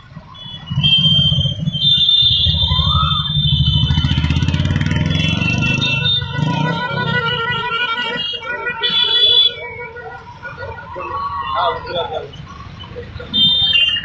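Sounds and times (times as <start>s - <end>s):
motorcycle engines revving: 0.0s - 14.0s
horn tones: 0.4s - 10.8s.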